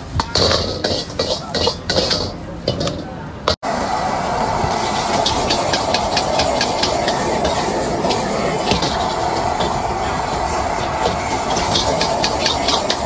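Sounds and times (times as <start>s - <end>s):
metal ladle clinking and scraping wok: 0.2s - 3.0s, 4.8s - 13.0s
gas burner rushing: 3.6s - 13.0s.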